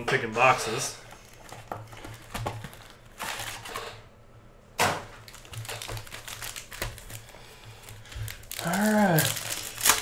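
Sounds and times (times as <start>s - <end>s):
foil packs tapping and crinkling: 1.1s - 3.8s, 5.2s - 10.0s.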